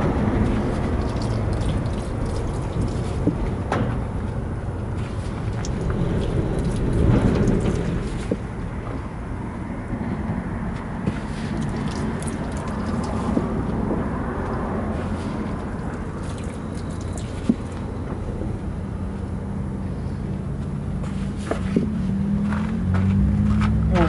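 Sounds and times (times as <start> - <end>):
water splashing onto tire: 0.0 - 4.2, 5.0 - 8.6, 11.2 - 14.1, 14.9 - 18.0
steady low rumble: 0.0 - 24.0.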